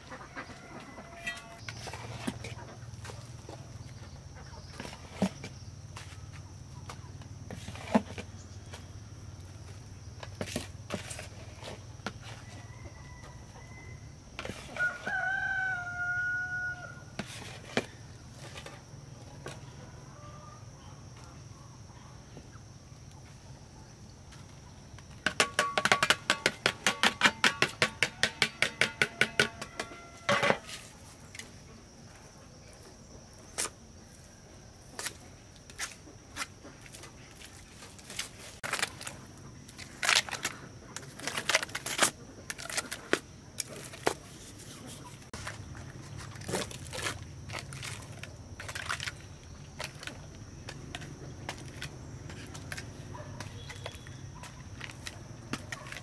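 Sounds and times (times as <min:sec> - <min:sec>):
rooster crowing: 0:00.2 - 0:01.6, 0:12.3 - 0:17.1, 0:28.1 - 0:30.7.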